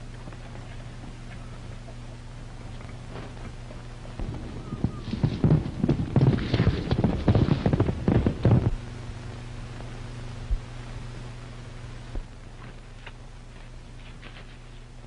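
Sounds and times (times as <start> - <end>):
horse hooves galloping: 0.0 - 8.9
film soundtrack hum: 0.0 - 15.0.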